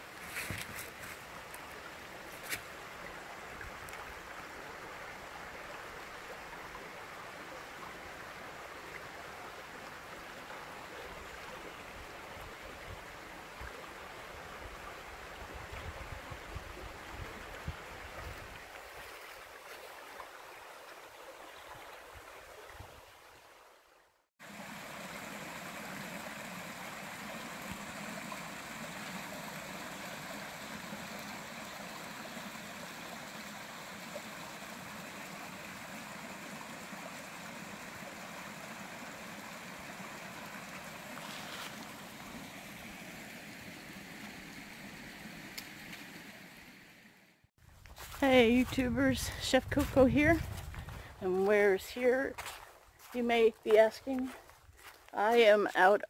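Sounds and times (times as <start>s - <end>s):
stream rushing over rock: 24.4s - 46.9s.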